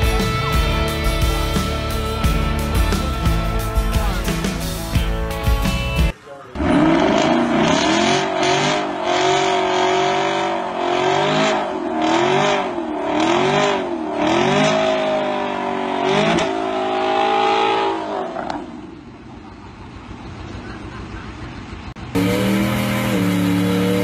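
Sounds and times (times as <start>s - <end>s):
car engine revving: 6.5s - 20.4s, 21.9s - 24.0s.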